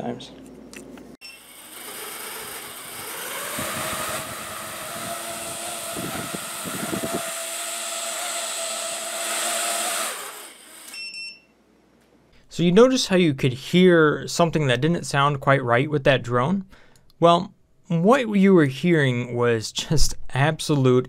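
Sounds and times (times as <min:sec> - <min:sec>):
quadcopter motors whirring: 0:01.2 - 0:11.0.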